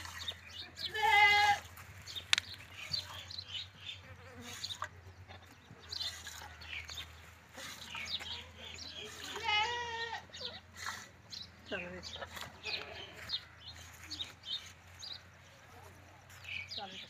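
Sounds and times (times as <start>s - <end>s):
animal bleat: 0.8s - 1.7s, 9.0s - 10.6s, 12.6s - 13.5s.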